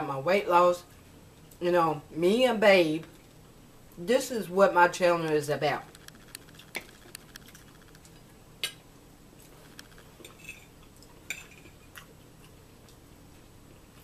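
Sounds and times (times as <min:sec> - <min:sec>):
fork scraping a plate: 0:10.2 - 0:12.0.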